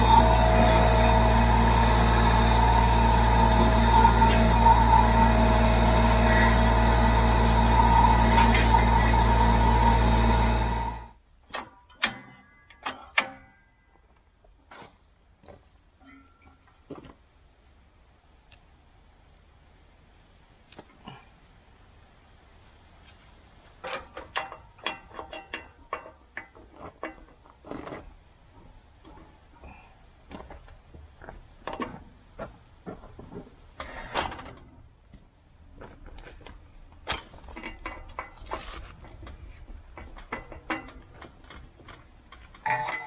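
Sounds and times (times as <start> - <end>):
metallic clicks and clanks: 11.5 - 13.8, 23.7 - 28.2, 36.2 - 43.0
scraping and rustling: 35.9 - 42.6.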